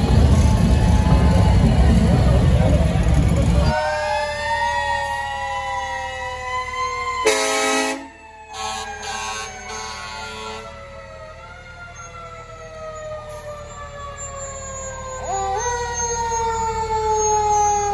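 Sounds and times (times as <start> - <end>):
fire engine siren wailing: 0.0 - 17.9
horn blast: 7.2 - 10.8.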